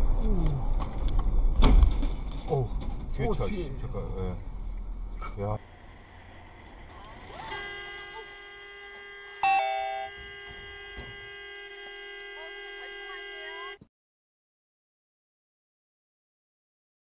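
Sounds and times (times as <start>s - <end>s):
steady electronic tones: 5.6s - 13.8s
two-note falling chime: 9.4s - 10.1s.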